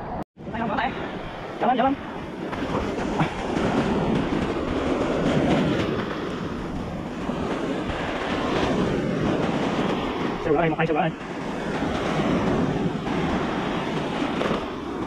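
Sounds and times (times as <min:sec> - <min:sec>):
sea surf on beach: 0:00.0 - 0:15.0
wind noise: 0:00.0 - 0:15.0.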